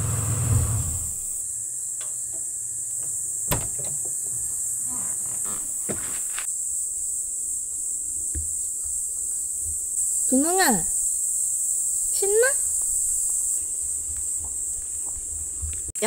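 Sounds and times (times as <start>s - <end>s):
high-pitched insect buzzing: 1.2s - 15.7s
car door latch click: 3.5s - 4.0s.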